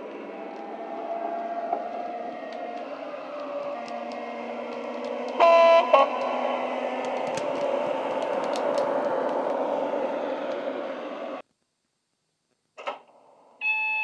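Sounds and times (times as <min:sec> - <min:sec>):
scattered clicks: 0:00.0 - 0:10.8
electric train drive sound: 0:00.0 - 0:11.4
two-tone horn toot: 0:05.3 - 0:06.3.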